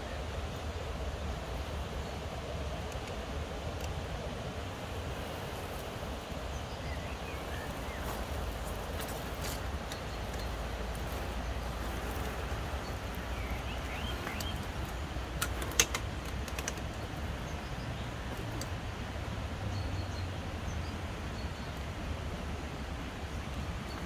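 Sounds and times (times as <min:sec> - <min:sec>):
rc crawler low rumble: 0:00.0 - 0:21.1
birds chirping: 0:04.8 - 0:22.0
twigs crackling and clicking: 0:07.4 - 0:17.0.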